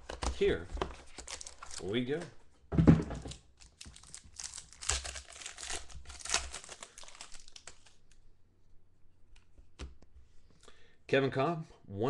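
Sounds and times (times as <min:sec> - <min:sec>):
wrapper tearing and crinkling: 0:01.1 - 0:01.9, 0:03.6 - 0:08.1.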